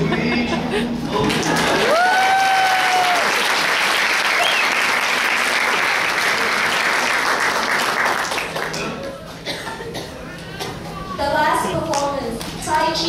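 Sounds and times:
audience applauding: 1.2s - 9.5s
rising whoop: 1.8s - 3.4s.

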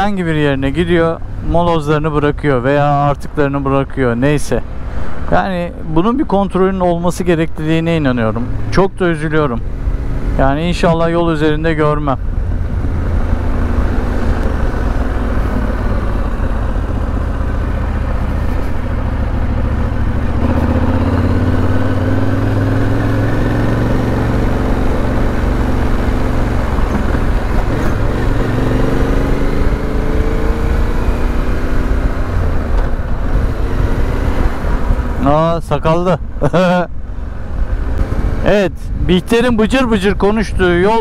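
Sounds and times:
motorcycle engine running: 12.2s - 35.2s.

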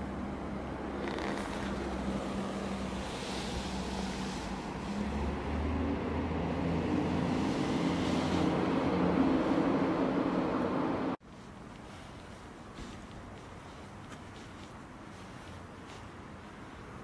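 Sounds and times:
hiss of street noise: 0.0s - 17.0s.

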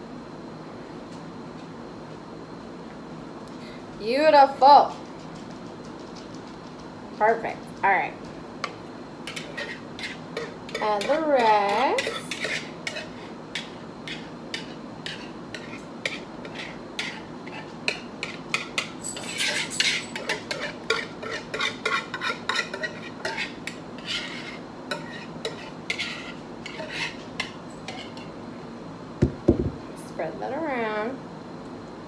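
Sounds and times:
utensil scraping and clinking bowl: 8.6s - 28.4s.

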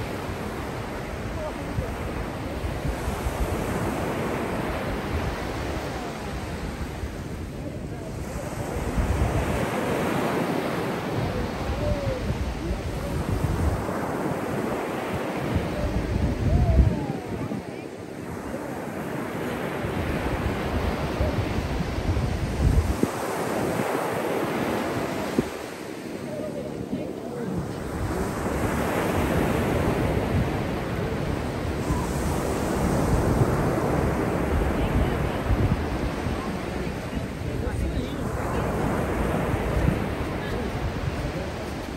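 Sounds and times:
waves breaking on shore: 0.0s - 41.9s
wind buffeting microphone: 0.0s - 41.9s.

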